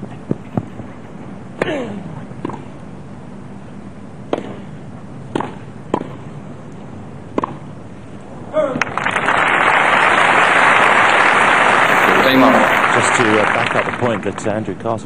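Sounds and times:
low crowd hum: 0:00.0 - 0:15.0
tennis ball hit by racquet: 0:02.4 - 0:02.6, 0:04.3 - 0:04.7, 0:05.3 - 0:06.2, 0:07.3 - 0:07.6.

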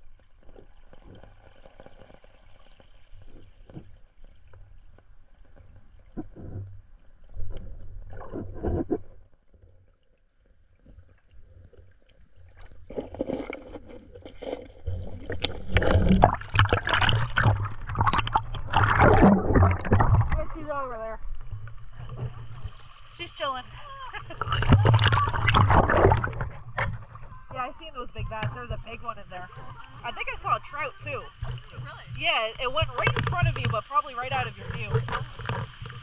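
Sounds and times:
gurgling water: 0:00.0 - 0:36.0
muffled underwater rumble: 0:00.0 - 0:36.0.

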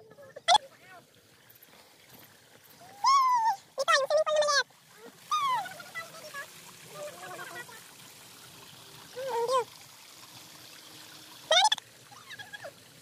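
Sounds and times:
water trickling over rock: 0:00.0 - 0:13.0.

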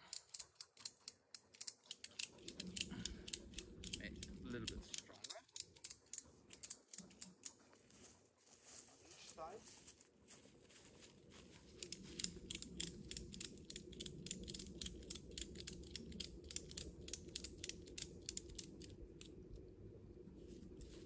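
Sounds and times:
footsteps crunching dry leaves: 0:07.6 - 0:12.2.

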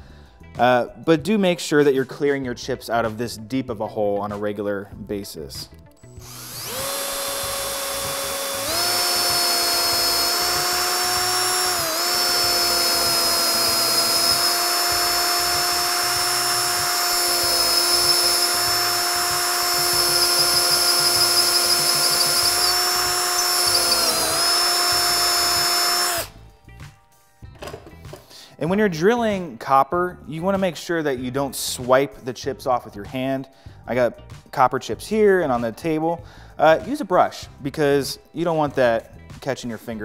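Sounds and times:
power drill boring into wood: 0:06.2 - 0:26.4.

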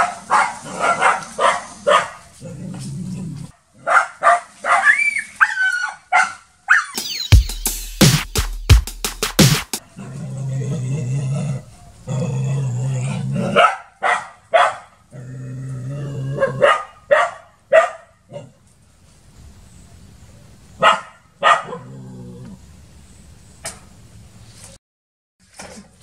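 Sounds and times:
dog barking: 0:00.0 - 0:02.3, 0:03.8 - 0:07.0, 0:13.4 - 0:15.0, 0:16.4 - 0:18.2, 0:20.8 - 0:21.9
dog growling low: 0:02.4 - 0:03.5, 0:10.0 - 0:13.6, 0:15.1 - 0:16.6, 0:21.7 - 0:22.6.

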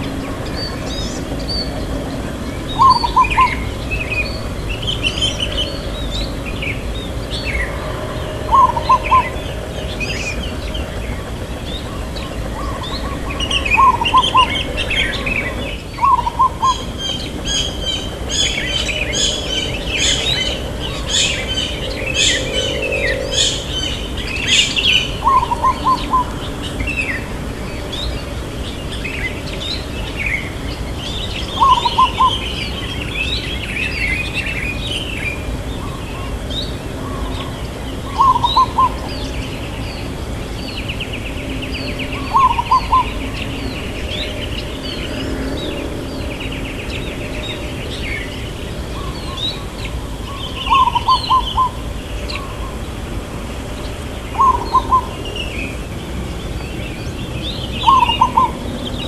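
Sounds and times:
small birds chirping: 0:00.0 - 0:53.0, 0:53.6 - 0:59.0
dove cooing: 0:02.8 - 0:03.8, 0:07.6 - 0:10.3, 0:12.0 - 0:26.6, 0:31.5 - 0:32.4, 0:38.0 - 0:39.3, 0:42.2 - 0:43.2, 0:50.7 - 0:51.8, 0:54.3 - 0:55.2, 0:57.8 - 0:58.6.

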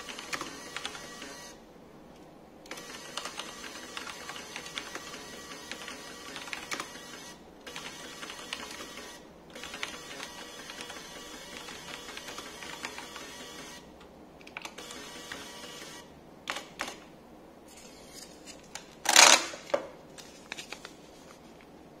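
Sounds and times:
mechanical keyboard typing: 0:03.0 - 0:07.0, 0:09.6 - 0:13.3
thermal printer motor whirring: 0:04.7 - 0:13.8.

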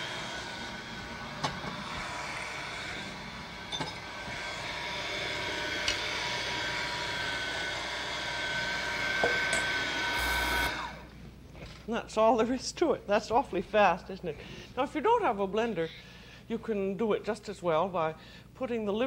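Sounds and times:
blender motor whining: 0:00.0 - 0:11.1.

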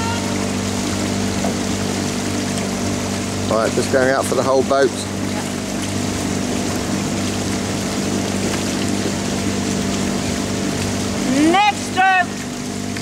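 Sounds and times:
outboard motor running: 0:00.0 - 0:13.0
water along a hull: 0:00.0 - 0:13.0.

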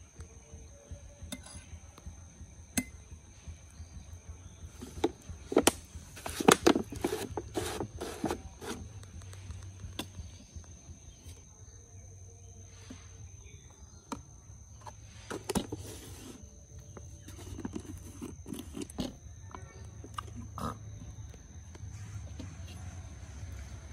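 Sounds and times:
plastic jar lid unscrewing: 0:05.0 - 0:08.9, 0:14.8 - 0:21.0.

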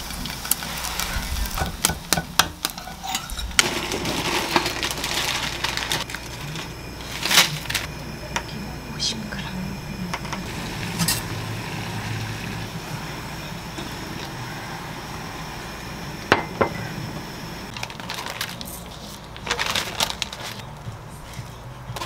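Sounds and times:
boiling water hissing: 0:00.0 - 0:21.6
dried seaweed sheet crackling: 0:03.6 - 0:07.9, 0:17.7 - 0:21.4.

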